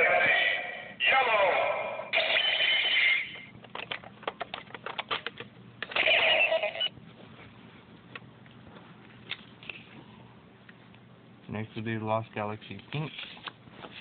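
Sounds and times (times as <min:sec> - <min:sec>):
loud ringing electronic tone: 0:02.1 - 0:03.5.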